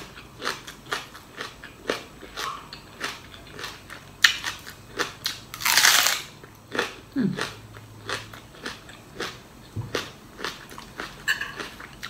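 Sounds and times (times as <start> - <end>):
crunchy chewing of raw leek: 0.0 - 12.0.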